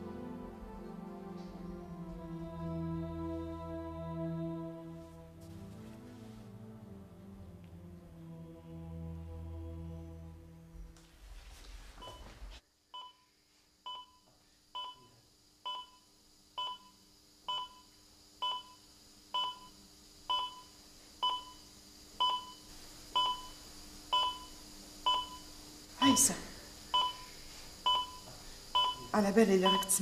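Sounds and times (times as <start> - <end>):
faint steady hum: 0.0 - 30.0
heart monitor beeping: 12.0 - 12.4, 13.0 - 13.3, 13.9 - 18.8, 19.4 - 25.5, 26.9 - 30.0.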